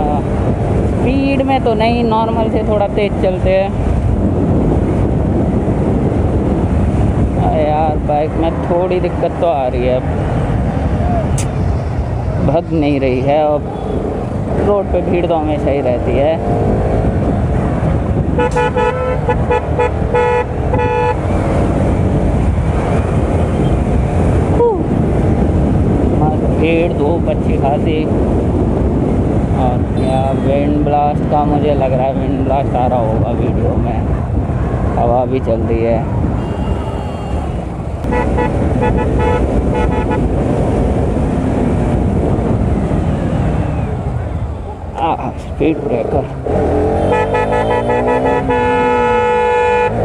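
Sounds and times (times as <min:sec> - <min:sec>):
wind on microphone: 0:00.0 - 0:50.0
vehicle horn honking: 0:18.4 - 0:21.2, 0:30.0 - 0:30.5, 0:36.4 - 0:40.3, 0:46.9 - 0:50.0
motorcycle engine rumble: 0:32.2 - 0:50.0.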